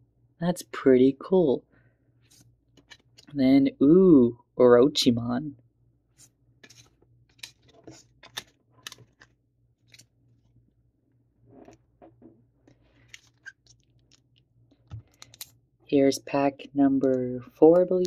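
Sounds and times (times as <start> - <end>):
cards clicking on countertop: 6.6 - 9.3.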